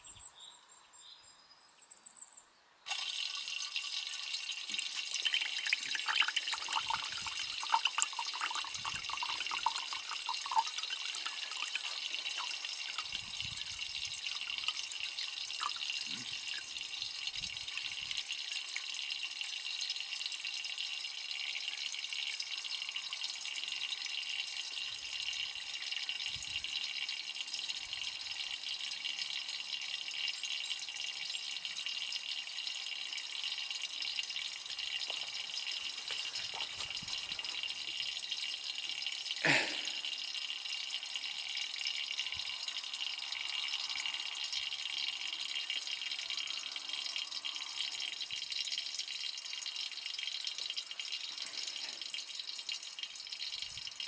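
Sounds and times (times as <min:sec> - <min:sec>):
water trickling into a glass: 0:02.9 - 0:54.0.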